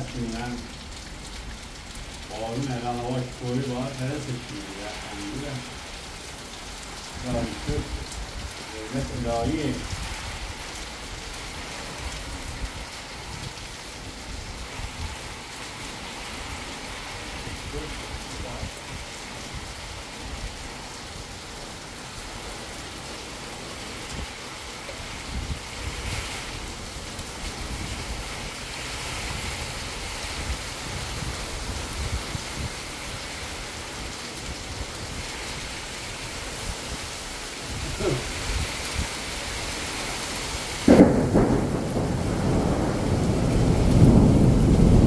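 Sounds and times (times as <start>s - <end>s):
steady rain hissing: 0.0s - 45.0s
loud thunder clap: 40.8s - 45.0s.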